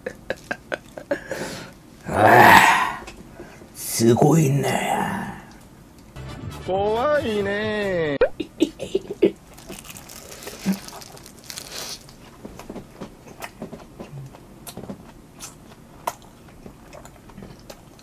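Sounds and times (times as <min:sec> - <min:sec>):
man chewing and smacking: 0:09.4 - 0:18.0.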